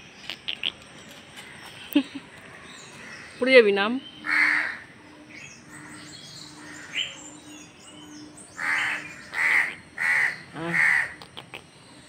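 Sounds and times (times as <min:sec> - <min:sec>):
small birds chirping: 0:00.0 - 0:12.0
crow cawing: 0:04.2 - 0:04.8, 0:08.6 - 0:11.2.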